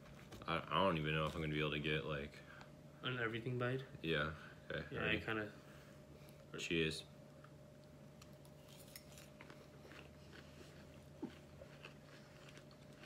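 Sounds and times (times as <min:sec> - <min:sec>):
low steady hum: 0:00.0 - 0:13.0
faint chewing crunches: 0:07.3 - 0:13.0.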